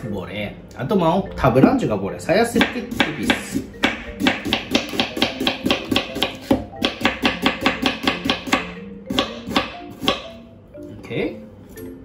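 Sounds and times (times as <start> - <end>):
knife chopping on wooden board: 2.6 - 10.4.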